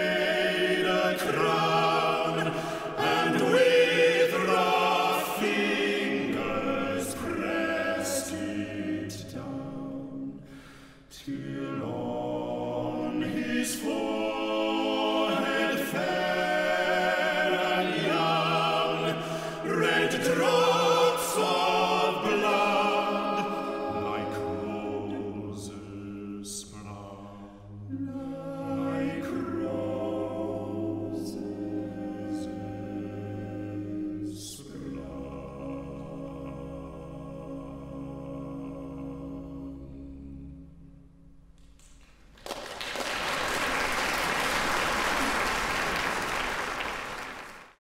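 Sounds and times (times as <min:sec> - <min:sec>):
male choir singing harmony: 0:00.0 - 0:40.9
audience applauding: 0:41.9 - 0:47.8.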